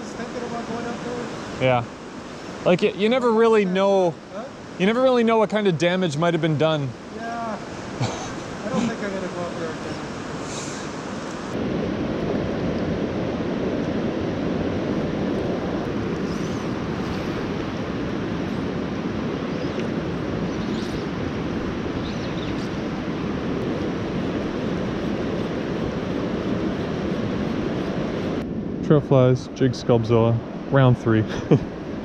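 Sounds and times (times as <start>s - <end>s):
river current rushing past rocks: 0.0s - 28.8s
wind rumble on microphone: 6.8s - 32.0s.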